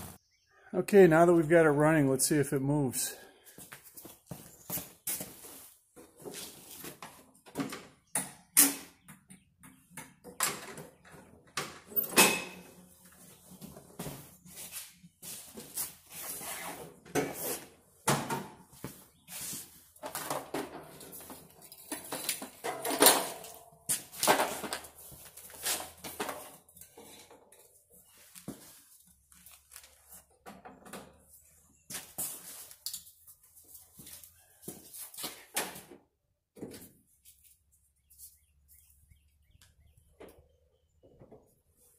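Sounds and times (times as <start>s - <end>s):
boots scuffing on concrete: 3.4s - 6.6s.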